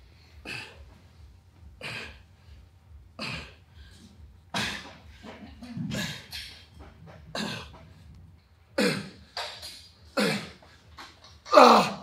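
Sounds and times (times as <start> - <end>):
person grunting: 11.5 - 12.0.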